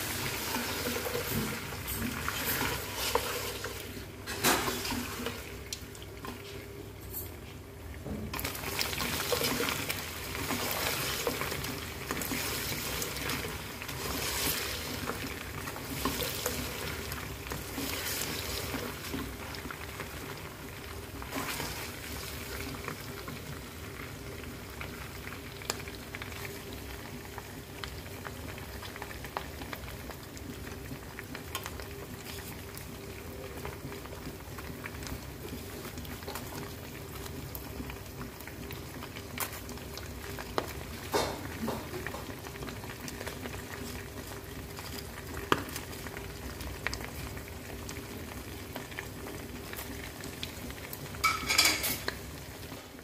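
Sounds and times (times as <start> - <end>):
spatula stirring in wok: 0.0 - 5.5, 8.4 - 19.6
meat sizzling in oil: 0.0 - 6.4, 8.3 - 53.0.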